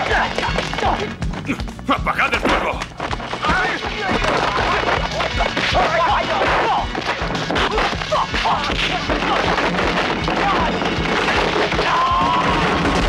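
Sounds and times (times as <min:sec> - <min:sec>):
action film music: 0:00.0 - 0:13.0.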